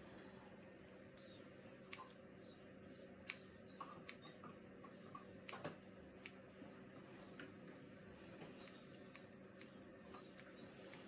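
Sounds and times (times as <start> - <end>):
low steady hum: 0.0 - 11.0
scissors snipping hair: 1.9 - 2.2, 3.2 - 4.2, 5.4 - 6.4, 8.6 - 11.0.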